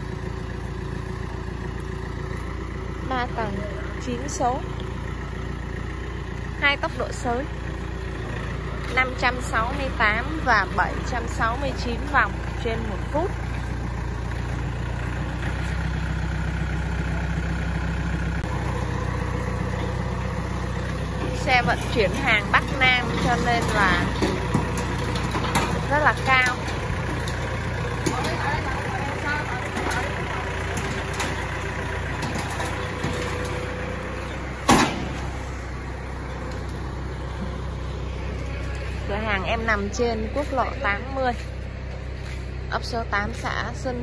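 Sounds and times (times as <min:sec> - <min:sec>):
tractor diesel engine running: 0:00.0 - 0:44.0
loud thump: 0:34.6 - 0:35.3.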